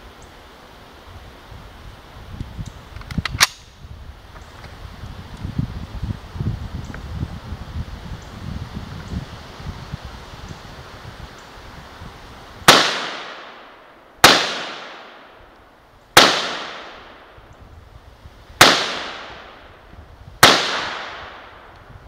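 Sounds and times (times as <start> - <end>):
rifle shots echoing: 12.7 - 15.4, 16.2 - 17.3, 18.6 - 19.7, 20.4 - 21.6.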